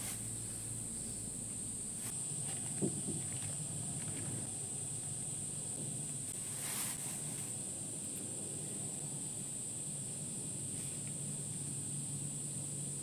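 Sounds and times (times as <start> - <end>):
insects droning: 0.0 - 13.0
low steady hum: 0.0 - 13.0.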